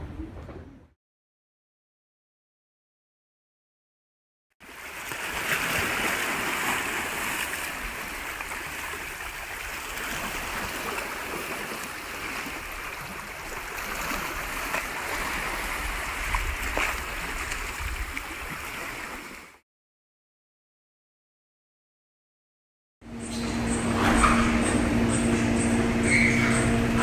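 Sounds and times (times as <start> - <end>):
waves lapping against boulders: 4.6 - 19.6.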